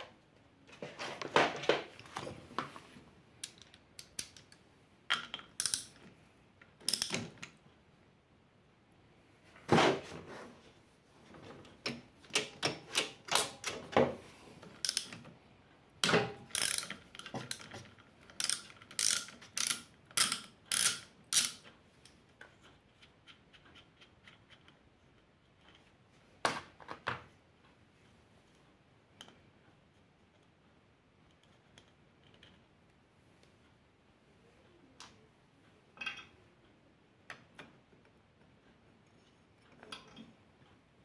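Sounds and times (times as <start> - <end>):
socket ratchet clicking: 5.6 - 6.0, 14.8 - 15.2, 16.5 - 17.7, 18.3 - 21.6.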